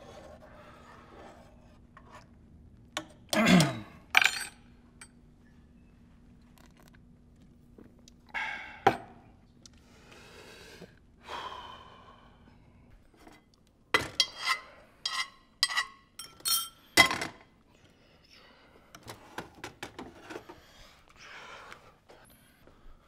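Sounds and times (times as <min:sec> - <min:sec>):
glass and dishes clinking: 0:15.6 - 0:17.3.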